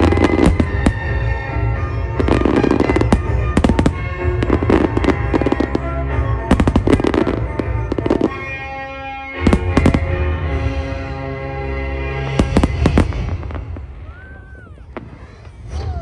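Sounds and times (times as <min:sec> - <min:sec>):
music with held tones: 0:00.0 - 0:14.0
fireworks bangs and crackles: 0:00.0 - 0:16.0.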